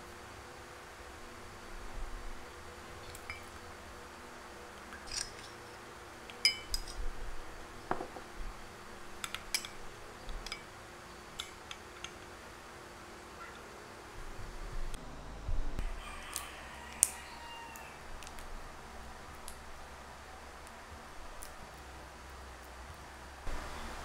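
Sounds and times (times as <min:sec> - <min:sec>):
spoon clinking in glass: 0:03.1 - 0:03.5, 0:06.4 - 0:07.0.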